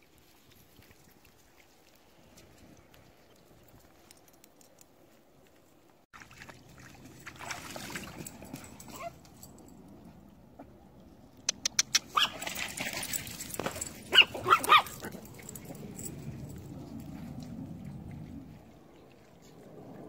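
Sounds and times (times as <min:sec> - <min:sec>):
dogs splashing in puddle: 0:06.1 - 0:09.2, 0:11.9 - 0:20.0
sharp clicks: 0:11.4 - 0:12.1
dog yelping: 0:11.9 - 0:12.5, 0:14.1 - 0:15.2.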